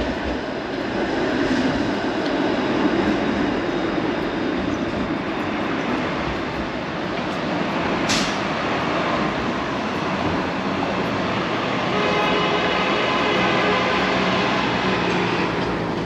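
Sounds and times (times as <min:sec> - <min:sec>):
street traffic: 0:00.0 - 0:16.0
streetcar running on rails: 0:00.0 - 0:16.0
multi-tone hum: 0:08.6 - 0:16.0.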